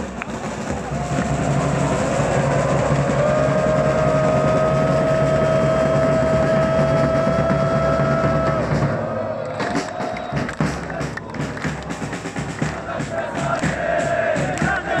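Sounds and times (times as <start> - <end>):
stadium crowd noise: 0.0 - 15.0.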